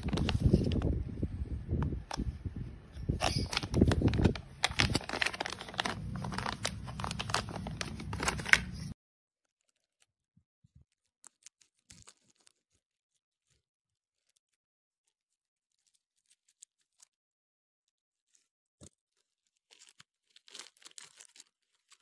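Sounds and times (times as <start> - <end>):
package wrapping tearing and crinkling: 0.0 - 0.9, 3.2 - 9.0, 18.2 - 22.0.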